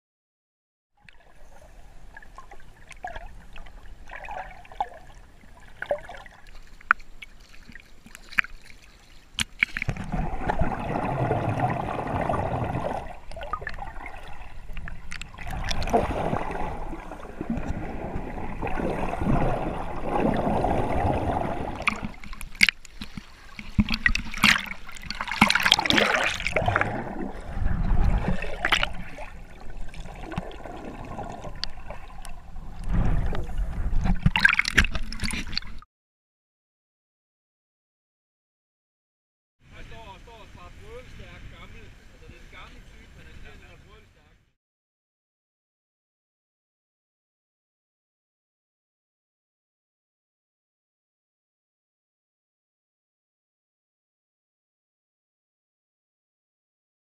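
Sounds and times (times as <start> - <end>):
water sloshing and gurgling: 1.0 - 35.8
water splashing: 1.0 - 35.8.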